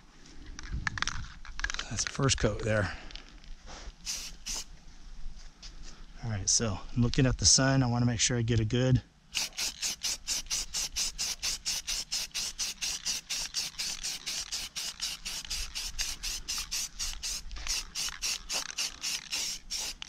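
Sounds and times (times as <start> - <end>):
spray paint can hissing: 4.0 - 4.7, 9.4 - 20.0.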